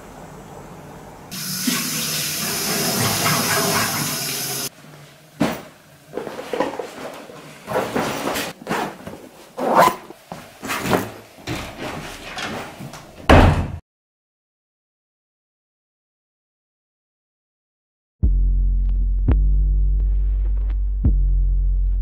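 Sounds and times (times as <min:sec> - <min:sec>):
water running from a tap: 0:01.3 - 0:04.7.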